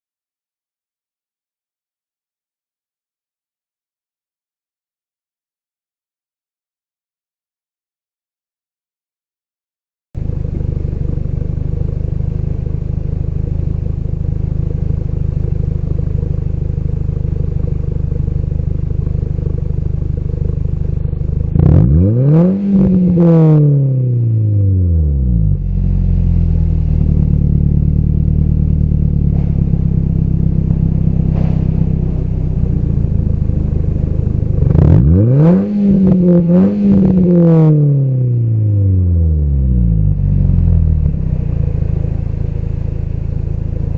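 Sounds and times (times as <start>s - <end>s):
car exhaust idling and revving: 10.2s - 43.9s.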